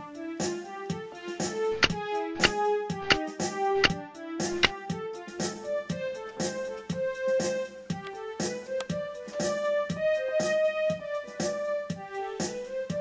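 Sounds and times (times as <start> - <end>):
keyboard melody: 1.6 - 11.2.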